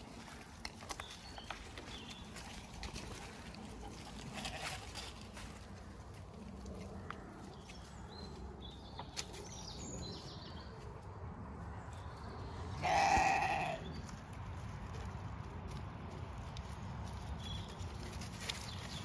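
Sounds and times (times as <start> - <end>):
ram bleating: 4.3 - 4.8, 12.8 - 13.8.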